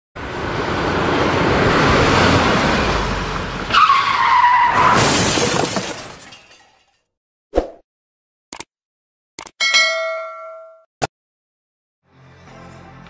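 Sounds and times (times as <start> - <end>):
rushing vehicle noise: 0.2 - 5.2.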